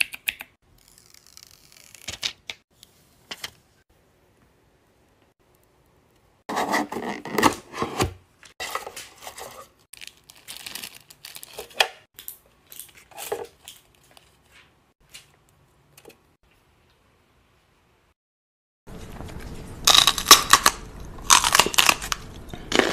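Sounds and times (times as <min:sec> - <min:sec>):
packaging crinkling: 0:09.9 - 0:11.8.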